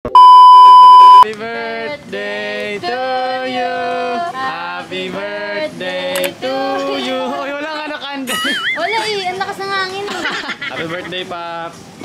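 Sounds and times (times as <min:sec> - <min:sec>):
loud bleep tone: 0:00.0 - 0:01.2
voices singing: 0:01.2 - 0:08.0.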